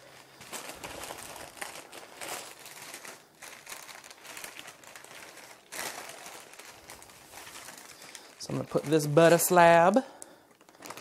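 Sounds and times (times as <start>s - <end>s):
baking paper crinkling: 0.0s - 11.0s.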